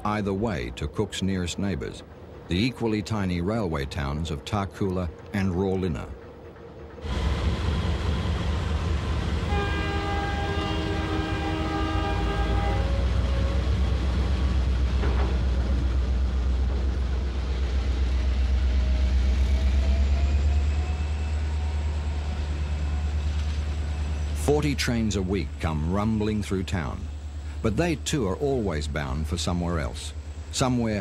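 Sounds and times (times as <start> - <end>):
diesel locomotive rumbling past: 0.0 - 31.0
locomotive air horn blast: 9.4 - 13.7.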